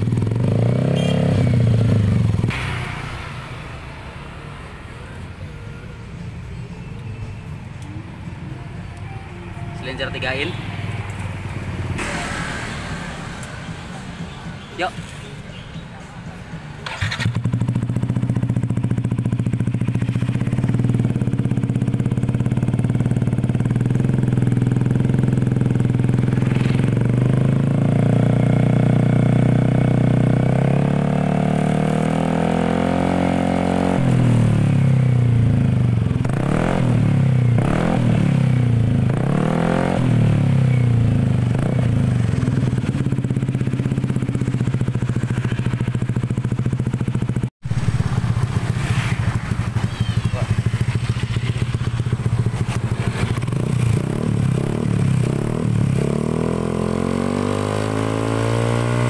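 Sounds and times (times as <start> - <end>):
scooter engine revving: 0.0 - 3.8, 16.8 - 59.0.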